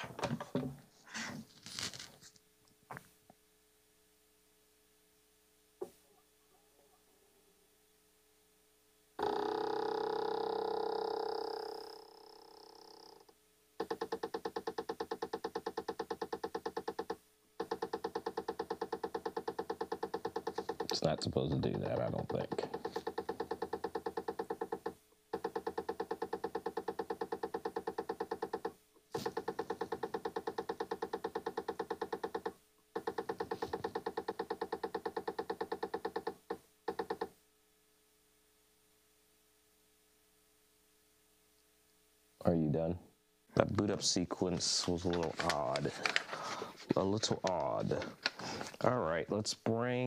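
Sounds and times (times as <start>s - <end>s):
camera mechanism knocking rapidly: 21.6s - 37.2s.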